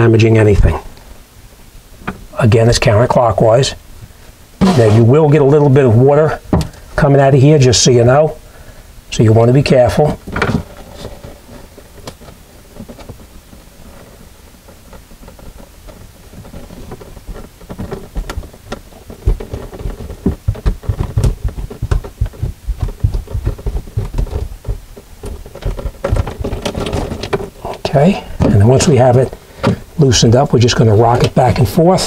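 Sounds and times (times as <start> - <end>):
hands rubbing plastic pipe: 4.6 - 5.4, 10.5 - 31.9
thumps knocks and crackles: 6.4 - 7.1, 9.7 - 32.0.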